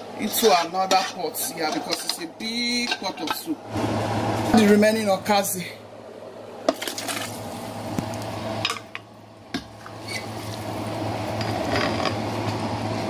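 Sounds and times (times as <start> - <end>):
utensils clinking on metal pot: 0.3 - 3.5.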